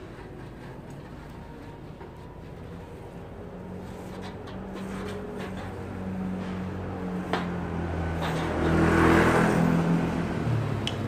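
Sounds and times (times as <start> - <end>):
steady engine hum: 0.0 - 11.0
motor scooter passing: 2.5 - 11.0.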